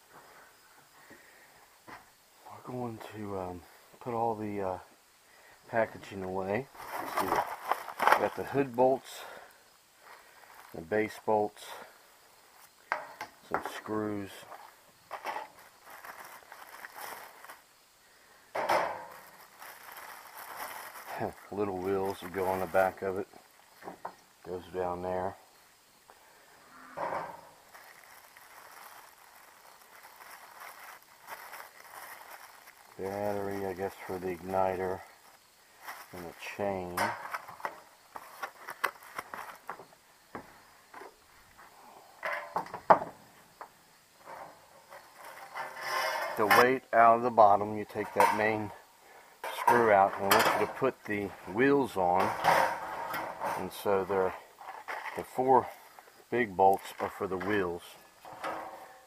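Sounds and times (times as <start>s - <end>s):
parts rustling and clattering: 5.8s - 9.4s, 12.5s - 17.7s, 18.5s - 25.3s, 26.9s - 43.2s, 44.2s - 46.8s, 47.4s - 48.8s, 49.4s - 56.0s, 56.6s - 59.0s
plastic packaging rustling: 6.7s - 8.7s, 13.8s - 17.7s, 18.8s - 23.0s, 27.6s - 39.8s.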